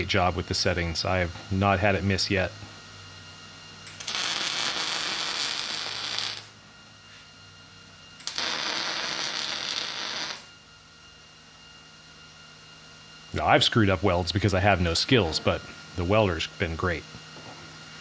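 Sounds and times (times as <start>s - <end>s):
welding arc noise: 3.8s - 6.6s, 8.2s - 10.5s.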